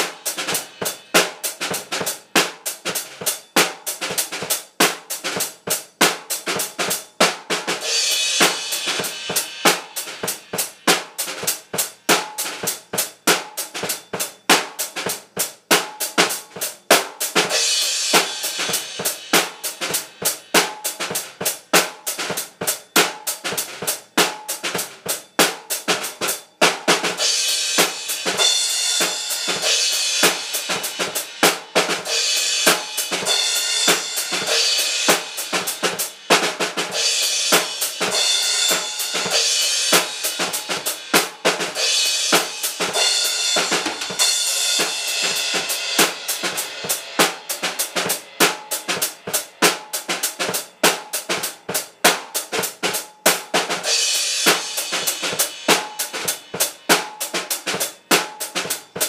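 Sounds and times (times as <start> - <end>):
acoustic drum kit: 0.0 - 59.0
cymbals ringing: 36.9 - 41.2, 41.8 - 47.2.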